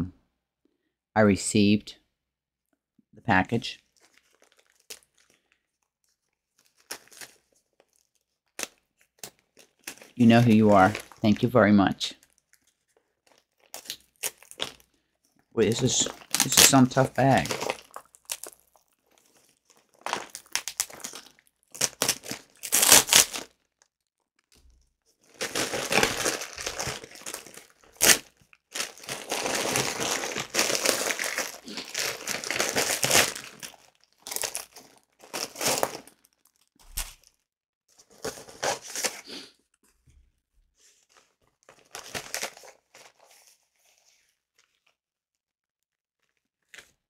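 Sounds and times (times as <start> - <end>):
mailing bag tearing and crinkling: 4.0 - 5.5, 6.6 - 11.4, 12.2 - 14.9, 15.7 - 23.9, 25.2 - 37.4, 38.0 - 39.4, 41.6 - 43.3.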